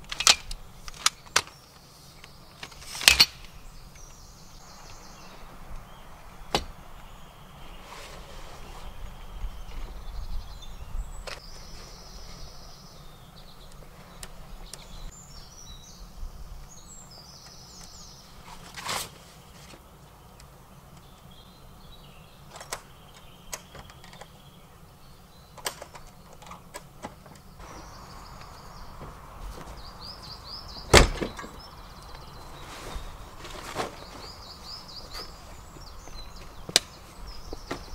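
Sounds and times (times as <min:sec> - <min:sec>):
birds chirping and singing: 0:00.0 - 0:37.9
roof tent shell clicks and knocks: 0:06.5 - 0:06.7.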